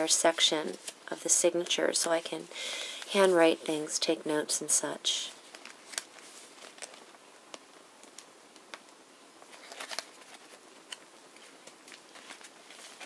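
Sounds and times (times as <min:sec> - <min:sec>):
paper pages turning: 0:00.6 - 0:02.3, 0:05.3 - 0:08.7, 0:09.4 - 0:13.0.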